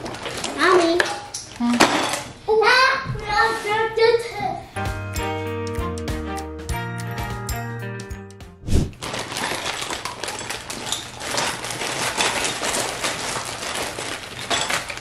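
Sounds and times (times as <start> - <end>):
plastic bags crinkling: 0.0 - 2.3, 9.0 - 15.0.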